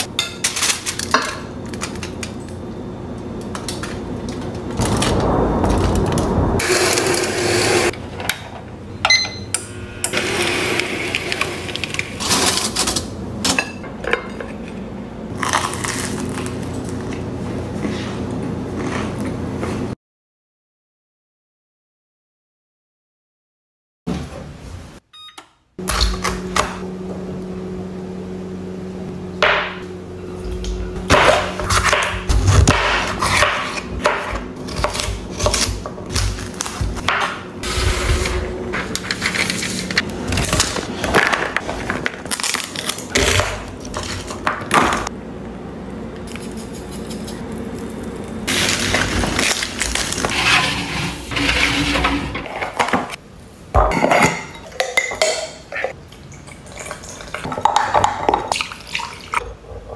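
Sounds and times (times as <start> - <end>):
steady low hum: 25.8 - 53.6.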